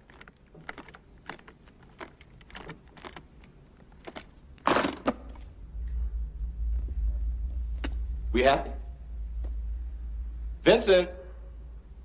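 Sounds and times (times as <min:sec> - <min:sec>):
combination lock wheels clicking: 0:00.0 - 0:05.2
case latches clacking open: 0:00.0 - 0:05.3.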